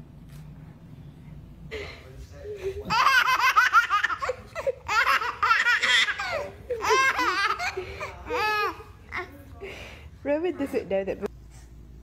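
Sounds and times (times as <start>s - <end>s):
baby laughing: 2.8s - 9.3s.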